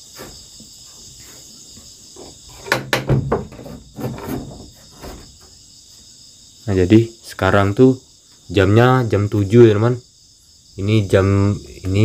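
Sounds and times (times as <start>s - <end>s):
crickets chirring: 0.0s - 12.0s
knocks and bumps on wood: 1.8s - 5.6s.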